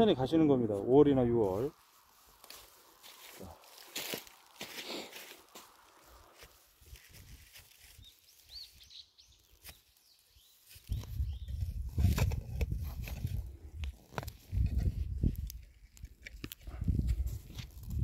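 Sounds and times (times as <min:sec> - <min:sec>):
faint bird chirps: 0:07.9 - 0:11.7.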